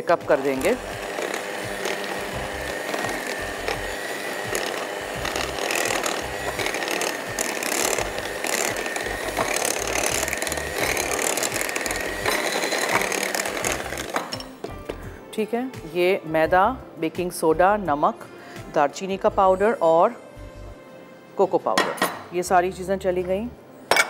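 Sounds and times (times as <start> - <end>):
electric hand mixer whining: 0.0 - 15.0
beaters clattering in bowl: 0.3 - 14.7.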